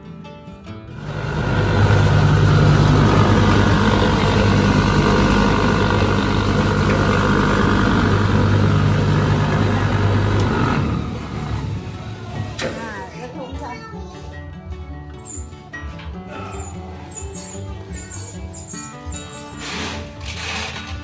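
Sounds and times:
motor running loudly: 0:01.0 - 0:12.9.

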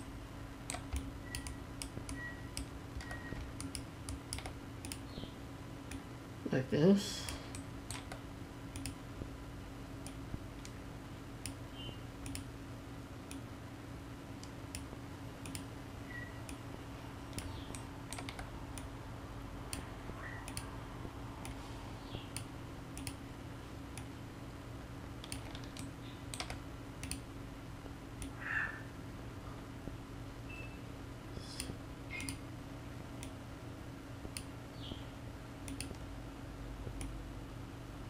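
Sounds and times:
steady low hum: 0:00.0 - 0:38.0
mouse and keyboard clicks: 0:17.3 - 0:18.9, 0:25.2 - 0:27.2.

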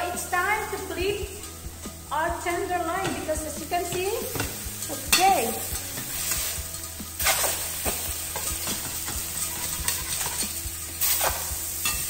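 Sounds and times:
steaks sizzling in a skillet: 0:00.0 - 0:12.0
fork scraping a pan: 0:04.2 - 0:12.0.

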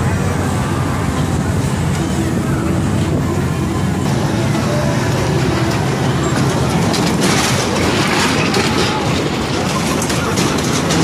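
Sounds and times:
kiddie ride mechanical rumble: 0:00.0 - 0:11.0.

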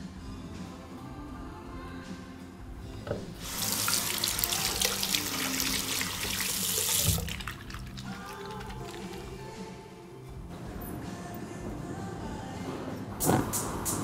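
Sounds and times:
faint background music: 0:00.0 - 0:14.0
hands being washed: 0:03.3 - 0:09.5
water running from faucet: 0:03.4 - 0:09.4.

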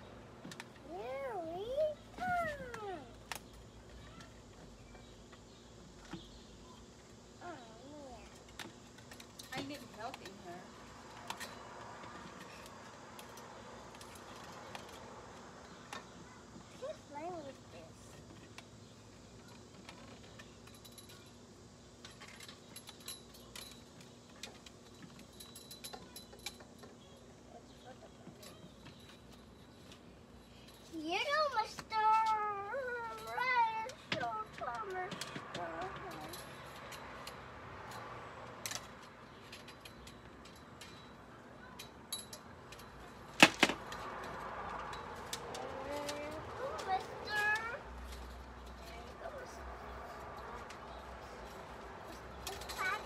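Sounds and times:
metallic clinks and taps: 0:22.1 - 0:27.1, 0:33.1 - 0:43.2.

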